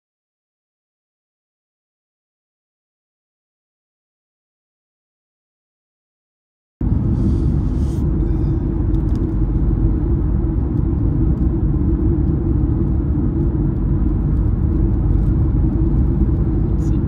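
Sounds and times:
car driving at highway speed: 6.8s - 17.0s.

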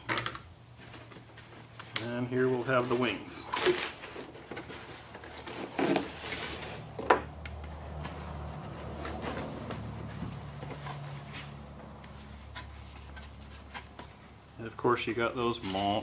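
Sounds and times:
plastic wrapping rustling: 0.8s - 14.3s
polystyrene packaging handled: 2.4s - 7.0s.

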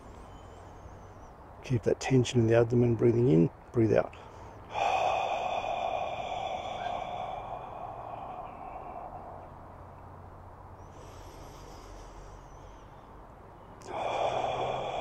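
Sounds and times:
faint breath in through nose: 4.2s - 9.6s, 10.8s - 13.2s, 13.8s - 15.0s
man exhaling slowly: 4.2s - 10.1s, 10.8s - 15.0s.

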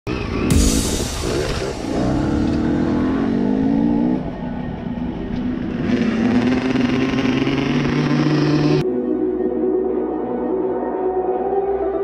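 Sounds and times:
dirt bike engine revving: 0.1s - 8.8s.

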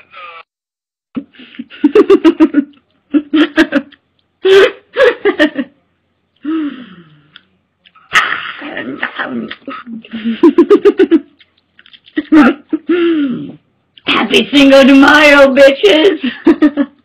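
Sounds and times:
woman laughing and giggling: 1.4s - 5.8s, 9.6s - 11.4s, 12.1s - 13.0s, 16.2s - 17.0s.

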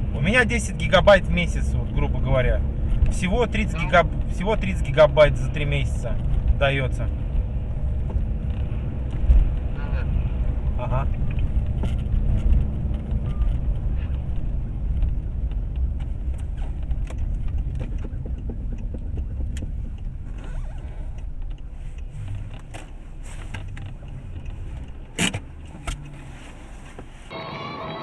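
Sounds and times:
car road and engine rumble: 0.0s - 28.0s
small clicks and rattles: 11.1s - 26.2s.

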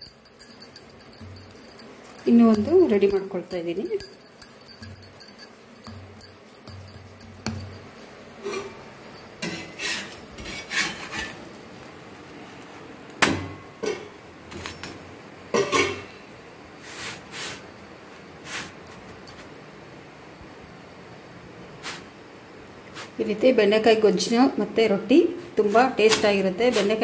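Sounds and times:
knocks and clinks: 0.0s - 9.7s, 18.8s - 19.7s.

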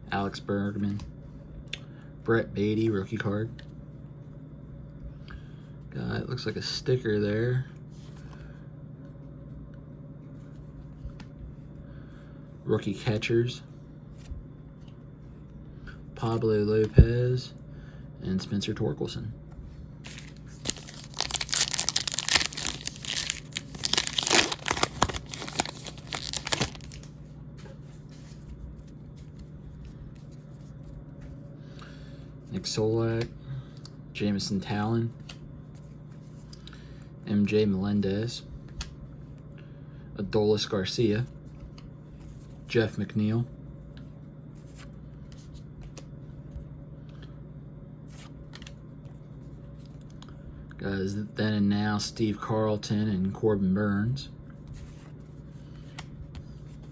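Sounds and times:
wrapper tearing and crinkling: 20.1s - 27.1s.

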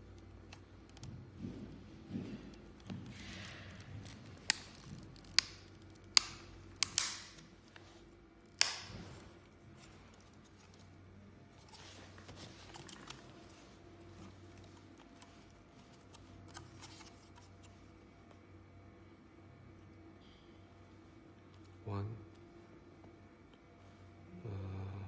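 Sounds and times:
sharp plastic clicks and snaps: 4.0s - 7.5s, 8.5s - 9.0s.

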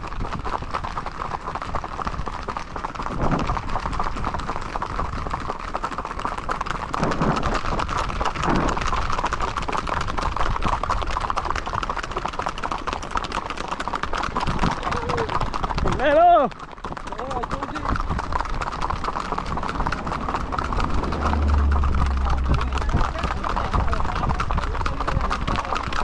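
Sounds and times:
horse hooves on asphalt: 0.0s - 26.0s.

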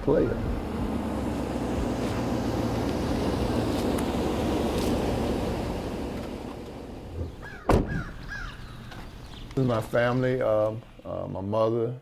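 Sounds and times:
vehicle engine running: 0.0s - 7.5s
tyre and road noise: 0.0s - 11.3s.

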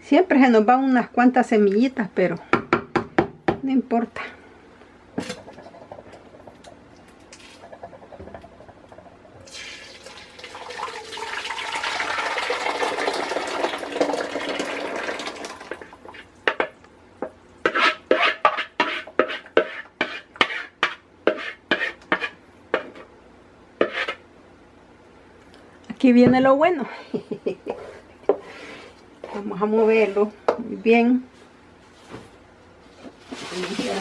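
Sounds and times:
wooden spoon knocking and scraping bowl: 5.2s - 6.8s, 7.6s - 9.2s, 16.4s - 23.1s, 23.8s - 24.2s, 27.7s - 30.7s
puree pouring into a pot: 9.4s - 16.2s.

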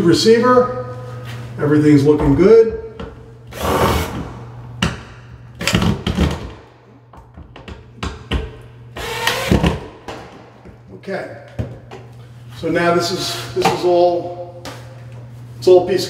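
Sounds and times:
cordless drill driving screws: 9.0s - 9.8s.

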